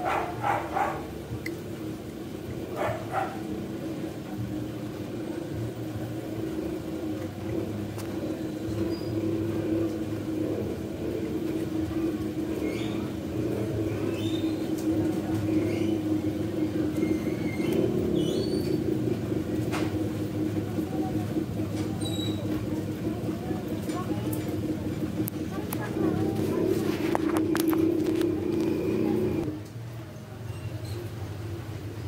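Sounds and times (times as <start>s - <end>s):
motor humming: 0.0s - 29.5s.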